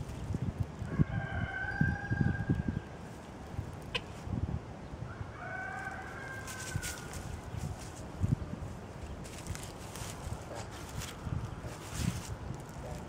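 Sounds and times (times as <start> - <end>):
hooves stepping in dry leaves: 0.0 - 1.7, 5.5 - 13.0
rooster crowing: 0.9 - 2.8, 5.1 - 7.4.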